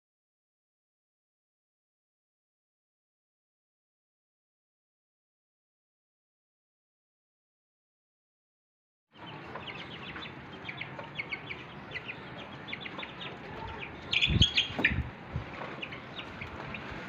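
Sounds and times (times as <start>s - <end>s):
chicks peeping: 9.2s - 17.0s.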